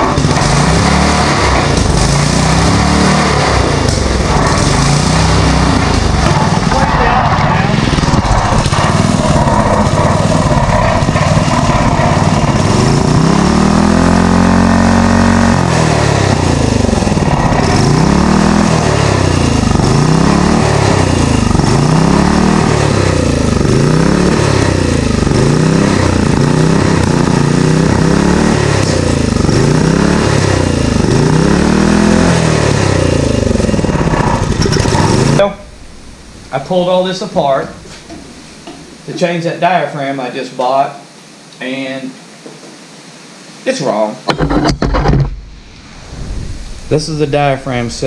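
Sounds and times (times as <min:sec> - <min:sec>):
small engine hunting: 0:00.0 - 0:38.2.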